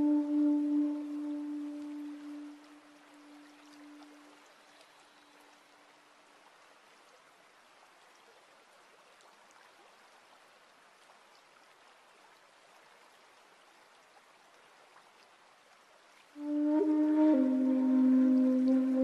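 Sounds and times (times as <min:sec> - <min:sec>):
water drips: 0:00.0 - 0:07.2, 0:13.0 - 0:19.0
stream trickling over pebbles: 0:00.0 - 0:19.0.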